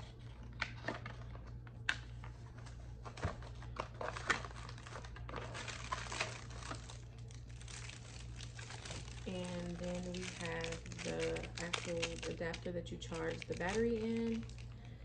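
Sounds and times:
paper and card rustling: 0.0s - 14.8s
plastic bag crinkling: 3.4s - 15.0s.

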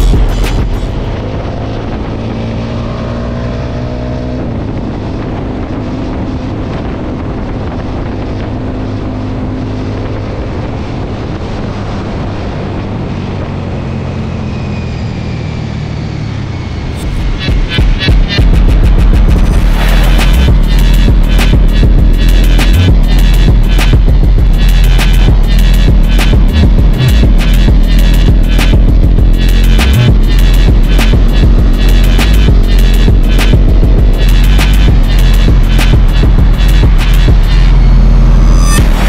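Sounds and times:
wind buffeting microphone: 4.4s - 14.1s
small motorcycle engine running: 16.7s - 39.0s.

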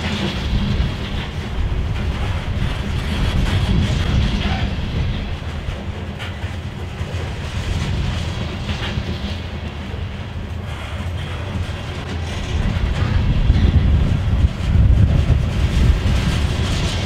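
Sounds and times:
train wheels rumbling on rails: 0.0s - 17.0s.

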